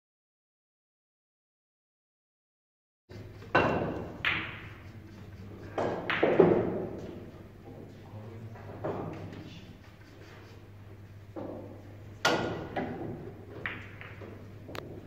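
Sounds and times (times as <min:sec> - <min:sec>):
billiard balls knocking: 0:03.1 - 0:07.9, 0:08.6 - 0:15.0.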